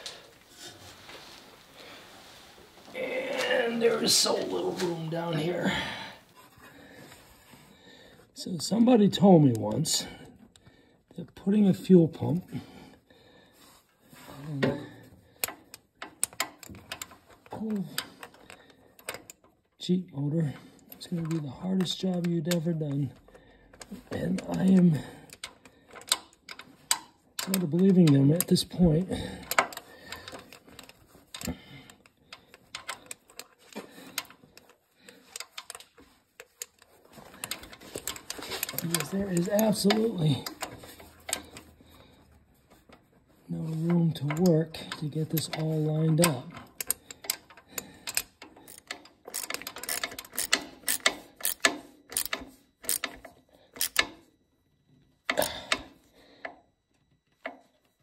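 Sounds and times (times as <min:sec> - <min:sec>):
metal fittings clicking: 0:29.4 - 0:41.7, 0:44.2 - 0:54.2.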